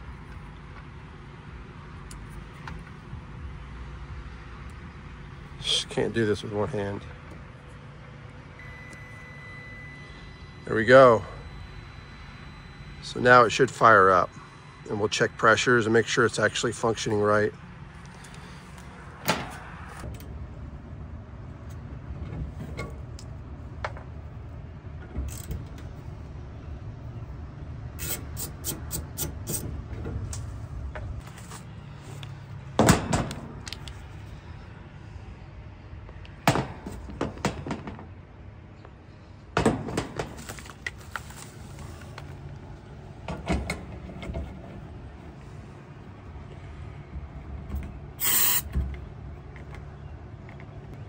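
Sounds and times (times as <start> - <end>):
heat pump humming: 4.8 - 32.0.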